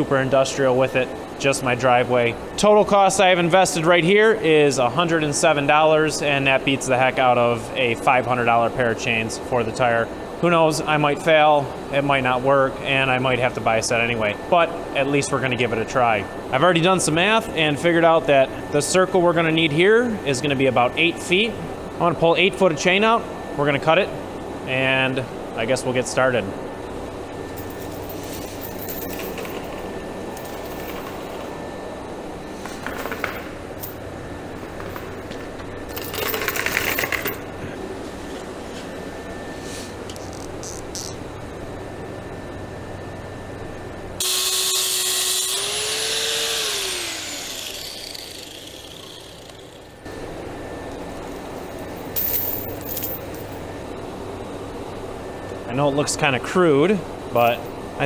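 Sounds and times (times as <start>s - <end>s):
low steady hum: 18.2s - 58.0s
sharp chain clinks: 27.6s - 29.6s, 52.1s - 53.6s, 57.4s - 57.6s
chain rattling on concrete: 27.6s - 29.8s, 30.4s - 31.4s, 32.9s - 34.0s, 35.9s - 37.4s, 52.0s - 53.6s
angle grinder cutting metal: 44.2s - 50.0s.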